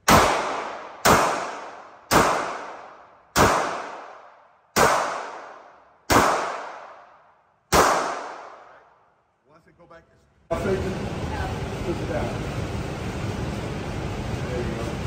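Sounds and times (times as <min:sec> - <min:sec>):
handgun shots with echo: 0:00.0 - 0:08.8.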